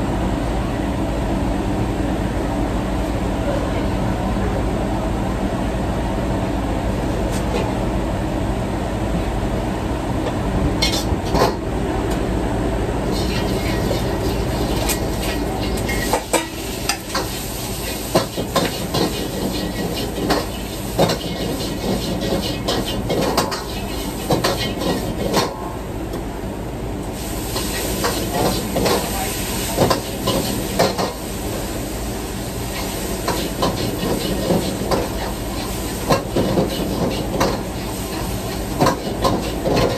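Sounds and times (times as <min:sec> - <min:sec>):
gas burner rumbling: 0:00.0 - 0:39.9
food sizzling in a wok: 0:13.0 - 0:25.6, 0:27.0 - 0:39.9
metal utensil scraping a wok: 0:13.1 - 0:25.6, 0:32.7 - 0:39.9.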